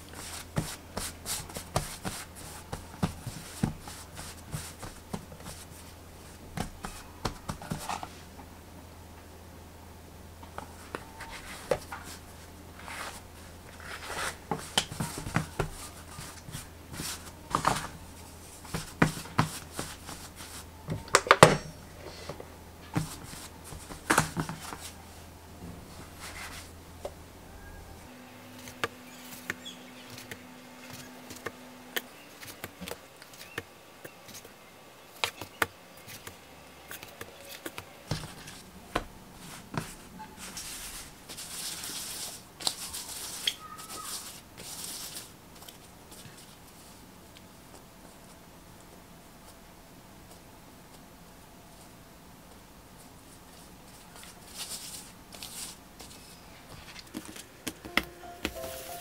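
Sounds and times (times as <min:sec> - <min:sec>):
hands patting and rolling dough: 0:00.0 - 0:08.5, 0:10.4 - 0:27.2, 0:28.6 - 0:49.6, 0:51.7 - 0:59.0
low steady hum: 0:00.0 - 0:43.2.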